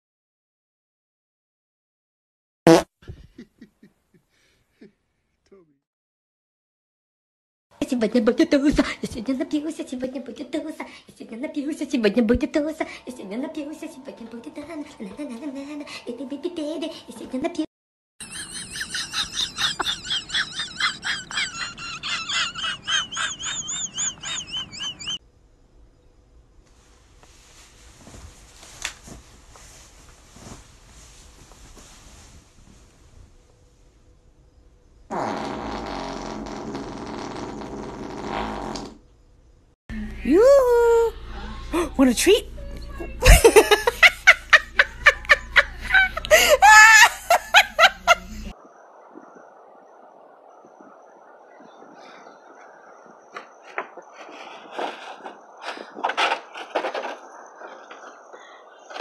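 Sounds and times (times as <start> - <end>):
person laughing hard: 18.2 - 25.2, 43.2 - 48.5.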